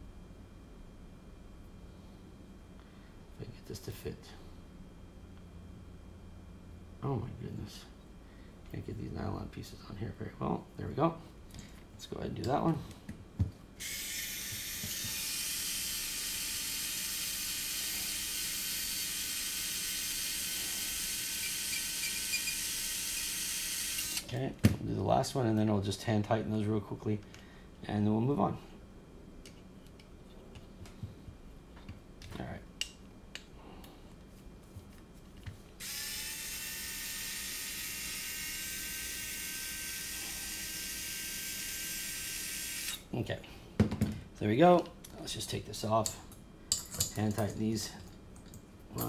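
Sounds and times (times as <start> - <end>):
electric screwdriver whirring: 13.8 - 24.3, 35.8 - 43.0.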